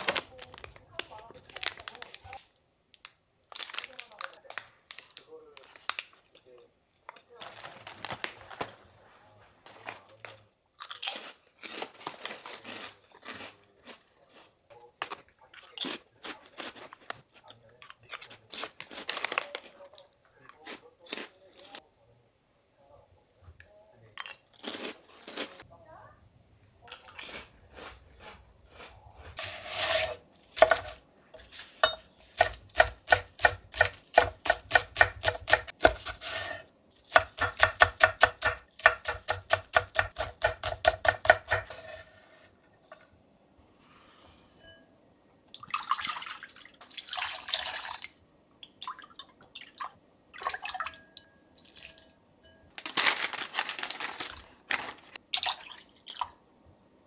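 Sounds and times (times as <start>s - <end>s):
knife chopping on wooden board: 31.8s - 41.9s
liquid pouring into metal cup: 45.6s - 48.1s.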